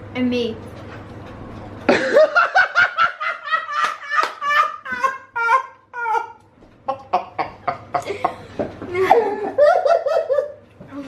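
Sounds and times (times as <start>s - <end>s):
person laughing: 1.9s - 10.6s.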